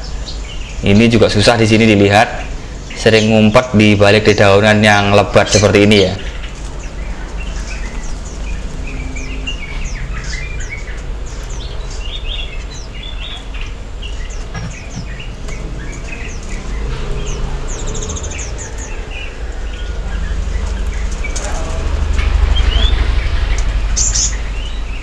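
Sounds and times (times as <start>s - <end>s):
small birds chirping: 0.0s - 25.0s
steady low rumble: 6.2s - 25.0s.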